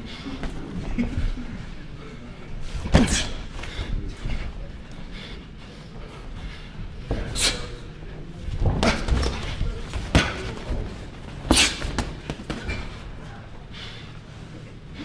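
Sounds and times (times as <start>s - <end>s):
boxing gloves smacking: 8.6s - 10.8s, 11.4s - 12.9s.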